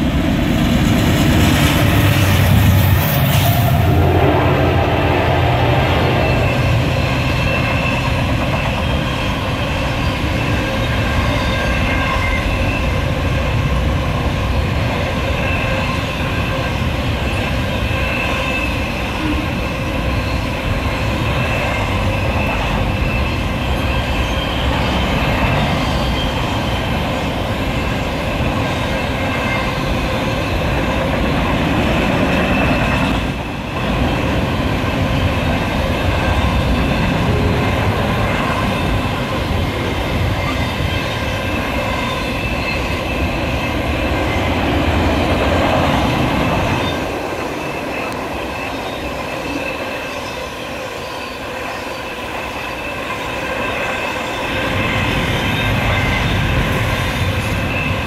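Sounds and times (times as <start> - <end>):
train wheels rumbling on rail: 0.0 - 58.0
high-pitched wheel squeal: 2.2 - 13.6, 14.6 - 31.0, 35.0 - 58.0.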